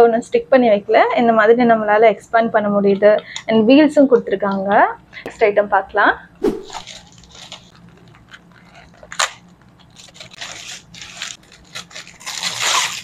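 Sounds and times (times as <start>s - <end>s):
plastic packaging crinkling: 7.1s - 13.0s.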